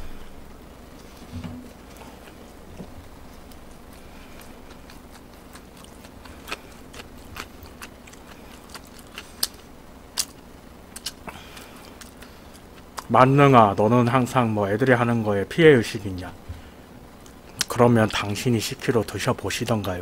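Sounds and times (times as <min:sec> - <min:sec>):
low steady hum: 0:00.0 - 0:20.0
person chewing food: 0:01.8 - 0:13.1.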